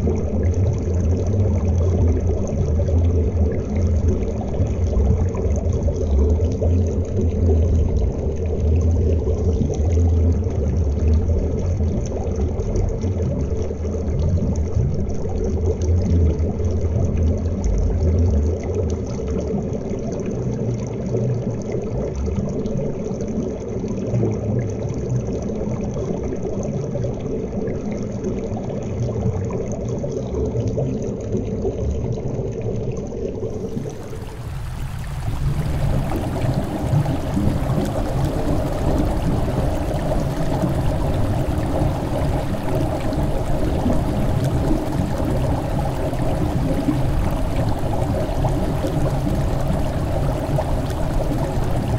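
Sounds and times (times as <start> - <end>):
underwater river rush: 0.0 - 24.6, 28.2 - 51.9
churning bubbles hiss: 33.4 - 51.9.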